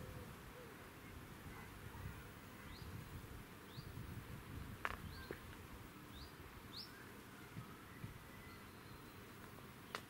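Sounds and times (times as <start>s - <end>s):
bird chirps: 5.0s - 5.4s, 6.1s - 10.0s.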